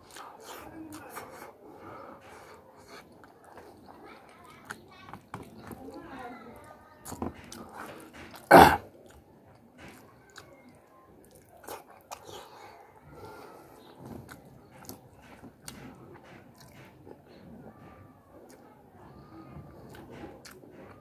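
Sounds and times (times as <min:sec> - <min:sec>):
chewing and biting food: 0:00.0 - 0:01.5, 0:07.0 - 0:12.7, 0:13.8 - 0:17.5, 0:19.7 - 0:21.0.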